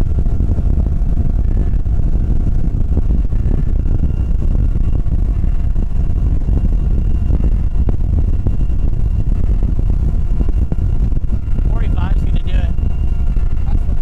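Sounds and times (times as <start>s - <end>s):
boat engine rumble: 0.0s - 14.0s
wind noise: 0.0s - 14.0s.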